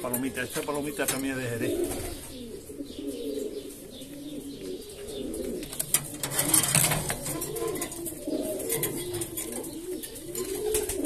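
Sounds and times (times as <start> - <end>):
pigeons cooing: 0.0 - 11.0
rustling and clicking: 5.0 - 11.0.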